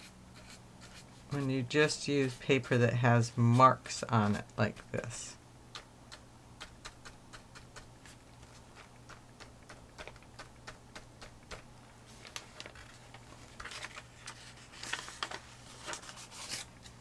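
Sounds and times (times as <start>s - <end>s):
scratchy brush strokes on paper: 0.0s - 4.5s
paintbrush dabbing on paper: 0.0s - 4.9s.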